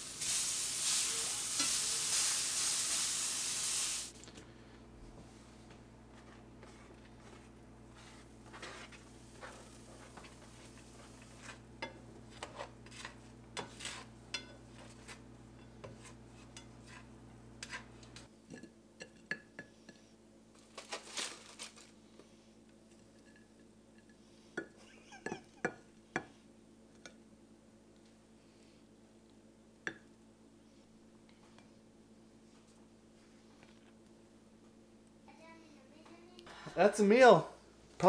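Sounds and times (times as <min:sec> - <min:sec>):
spatula scraping frying pan: 0:00.2 - 0:03.9, 0:06.6 - 0:18.3
spatula clinking on ceramic plate: 0:13.6 - 0:14.6.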